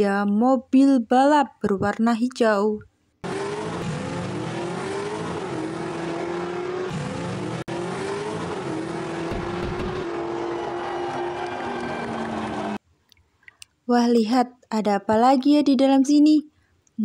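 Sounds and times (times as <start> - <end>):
race car engine accelerating: 3.2 - 12.8.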